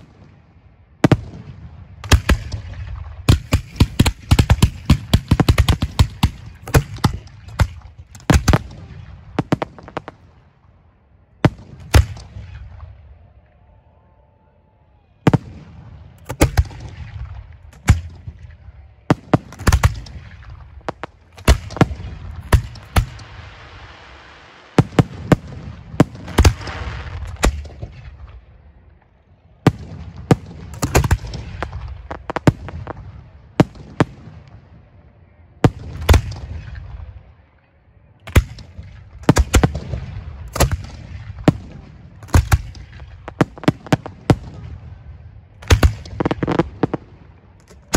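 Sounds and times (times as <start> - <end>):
firework shells booming: 1.1 - 10.2, 15.3 - 23.6, 24.7 - 28.3, 29.7 - 34.4, 38.3 - 47.9
firework hissing: 22.6 - 25.5.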